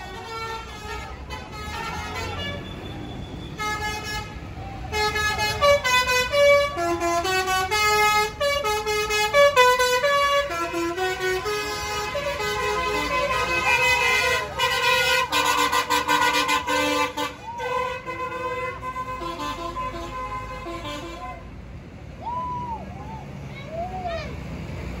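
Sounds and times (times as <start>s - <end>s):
musical air horns playing tunes: 3.5s - 21.4s.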